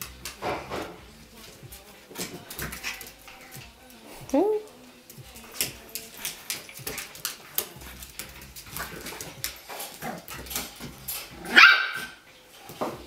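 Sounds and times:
claws clicking on wooden floor: 4.7s - 12.1s
high-pitched dog bark: 11.4s - 12.2s.

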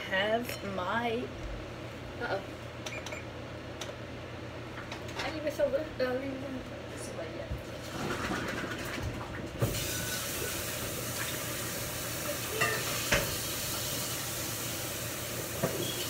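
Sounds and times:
food sizzling in a frying pan: 9.6s - 16.0s.

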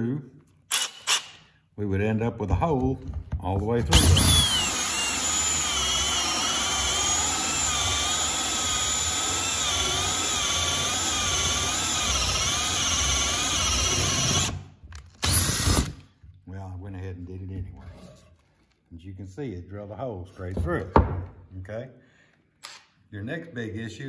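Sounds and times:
drill motor whining: 3.9s - 14.6s, 15.2s - 16.0s.

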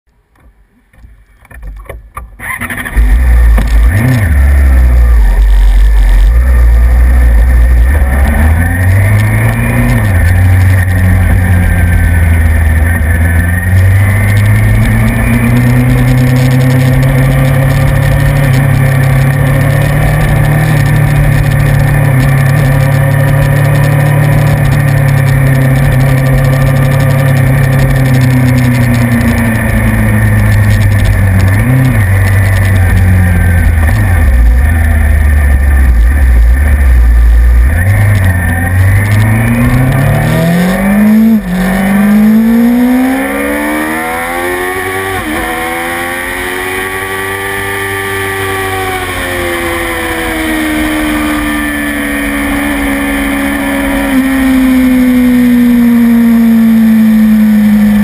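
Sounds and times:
vehicle engine starting and idling: 1.7s - 45.7s.

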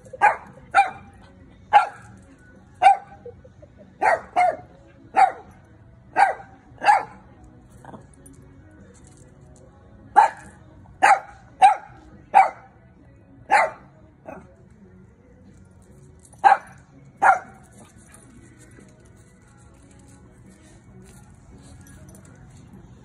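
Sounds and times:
dog barking: 0.1s - 2.2s, 2.8s - 3.2s, 4.0s - 7.2s, 10.2s - 12.8s, 13.5s - 14.5s, 16.4s - 17.8s.

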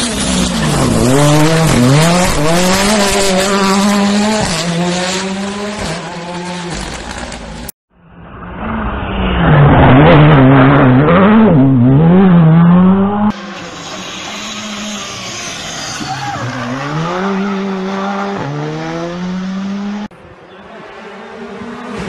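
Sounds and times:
rally car engine revving hard: 0.0s - 6.9s, 9.4s - 20.1s
distant rally car engine: 0.0s - 22.0s.

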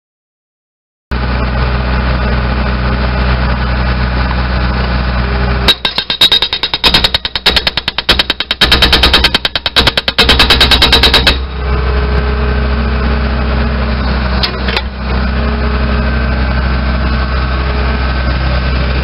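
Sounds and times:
backhoe engine running: 1.1s - 19.0s
hydraulic breaker hammering ground: 5.7s - 11.8s.

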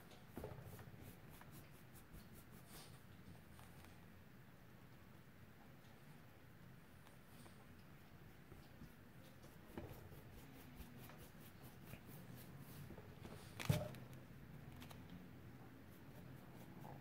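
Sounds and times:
paintbrush scratching and swishing: 9.3s - 13.6s.

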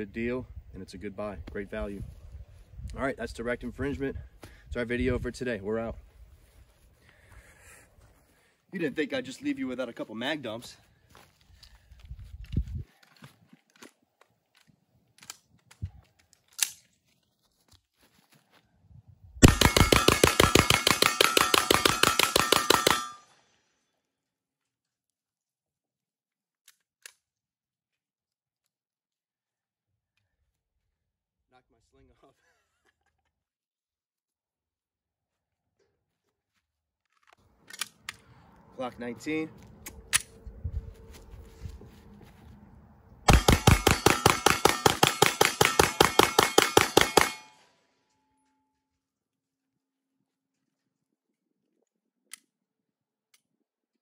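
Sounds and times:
rapid gunshots: 19.4s - 23.2s, 43.3s - 47.5s
rapid pistol shots: 19.4s - 23.2s, 43.3s - 47.6s.

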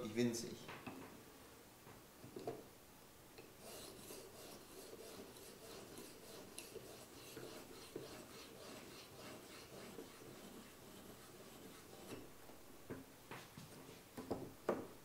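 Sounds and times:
sharpening stone scraping knife: 3.6s - 12.3s.

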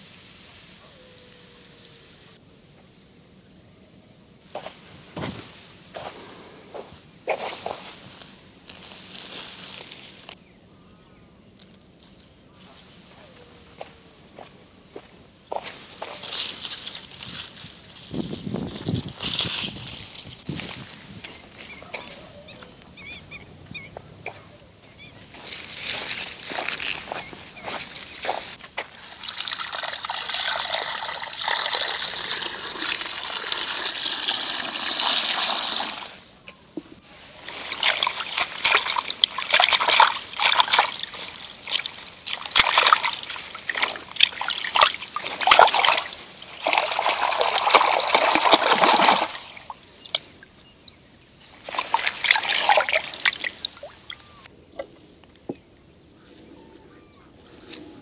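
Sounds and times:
water trickling: 27.7s - 36.2s, 37.4s - 54.5s
hands splashing vegetables in water: 37.4s - 50.3s, 51.6s - 54.4s.

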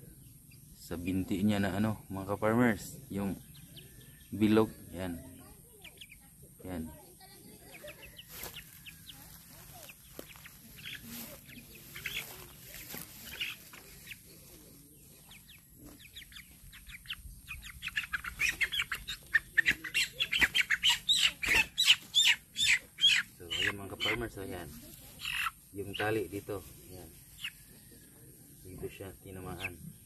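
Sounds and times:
faint chick chirps: 0.0s - 30.0s
rustling in grass: 7.2s - 29.8s.

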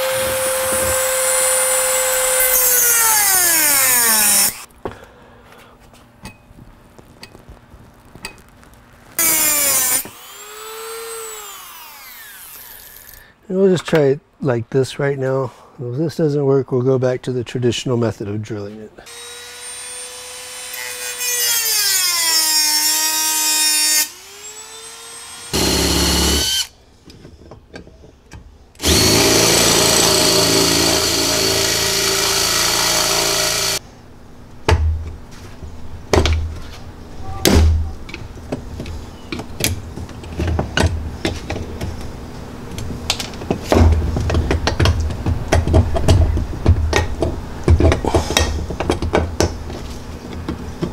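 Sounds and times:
cordless drill drilling into metal: 9.2s - 13.2s, 24.0s - 26.7s, 28.8s - 33.8s
rotary tool whining against metal: 24.0s - 26.7s, 28.8s - 33.8s.

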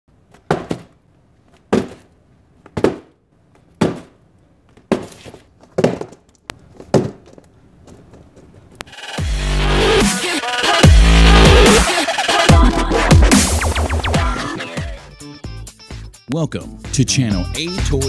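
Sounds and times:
cardboard parcel thudding: 0.3s - 1.0s, 1.7s - 2.1s, 2.7s - 3.2s, 3.8s - 4.2s, 4.8s - 7.4s.

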